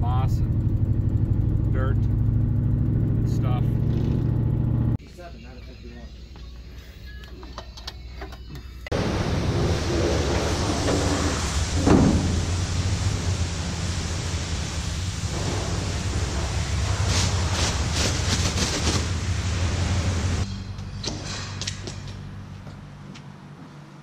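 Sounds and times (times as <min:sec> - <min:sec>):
car wash rumble and hiss: 0:08.9 - 0:20.5.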